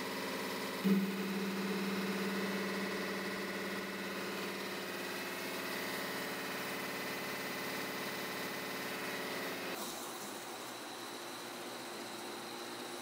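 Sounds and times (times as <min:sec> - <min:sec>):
air compressor running: 0:00.0 - 0:10.7
low hum: 0:00.8 - 0:07.5.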